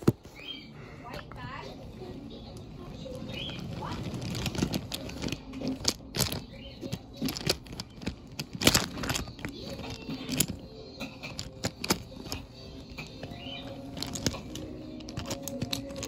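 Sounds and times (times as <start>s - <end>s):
toy couplers knocking: 5.2s - 16.0s.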